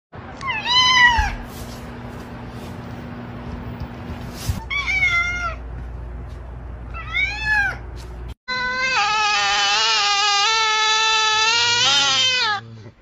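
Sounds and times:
cat meowing: 0:00.4 - 0:01.4, 0:04.6 - 0:05.6, 0:07.0 - 0:07.8
cat yowling: 0:00.4 - 0:01.4, 0:08.5 - 0:12.6.

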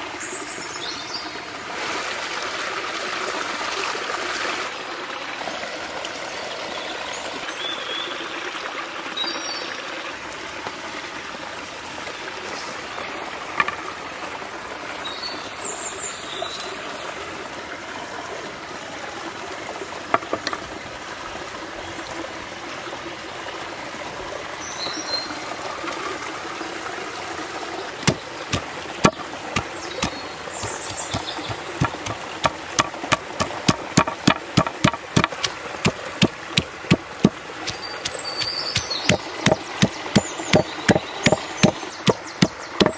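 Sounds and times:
forest stream running: 0:00.0 - 0:42.9
meat pounded on wooden board: 0:28.1 - 0:42.9.

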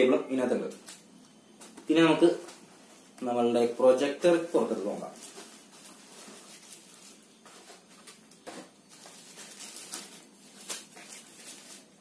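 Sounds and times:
cardboard and packaging handled: 0:04.2 - 0:12.0.

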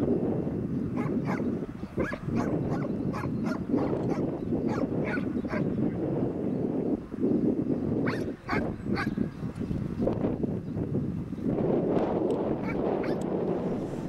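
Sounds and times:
steady low rumble: 0:00.0 - 0:14.0
dog barking: 0:01.0 - 0:01.4, 0:02.0 - 0:05.7, 0:08.1 - 0:09.2, 0:12.6 - 0:13.2.

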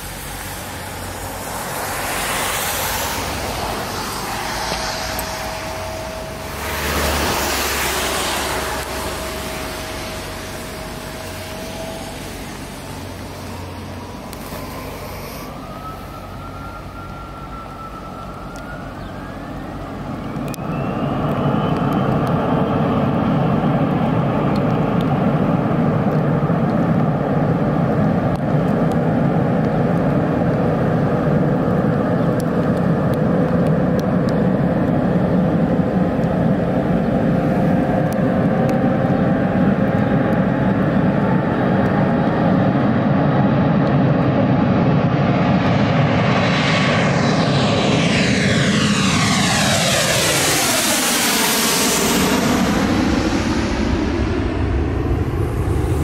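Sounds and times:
jet engines spooling up: 0:00.0 - 0:56.0.

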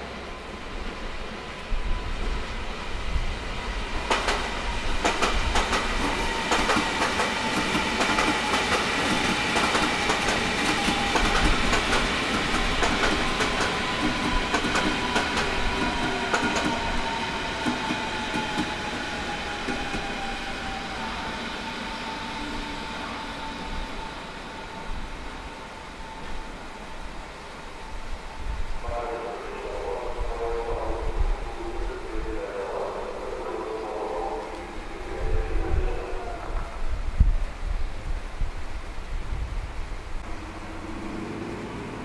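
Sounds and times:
train rumble: 0:00.0 - 0:42.0
train wheels clattering over rails: 0:04.0 - 0:20.3.

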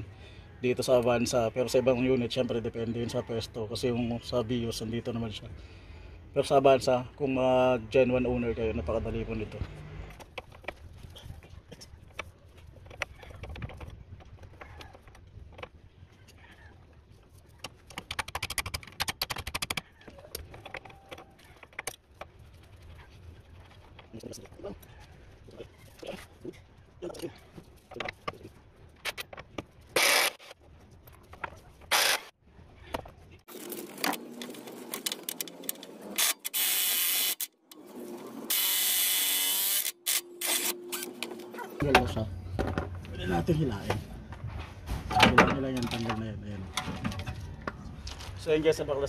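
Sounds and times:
electric wrench running: 0:30.0 - 0:30.5, 0:31.9 - 0:32.3, 0:36.2 - 0:37.8, 0:38.5 - 0:41.3.

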